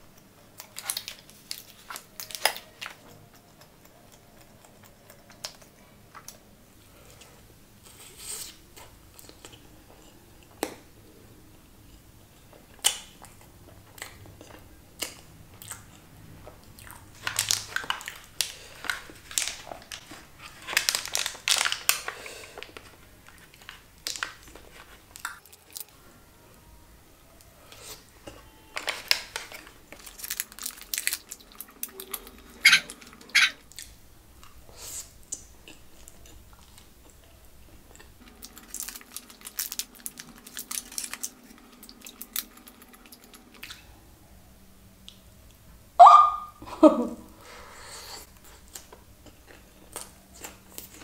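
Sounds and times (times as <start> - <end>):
person chewing: 0.6 - 6.4, 7.0 - 10.8, 16.7 - 25.9, 29.4 - 43.8, 48.0 - 51.0.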